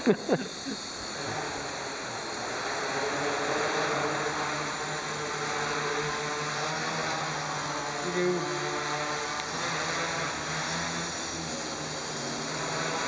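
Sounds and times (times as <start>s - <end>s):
quadcopter propellers whirring: 0.0s - 13.0s.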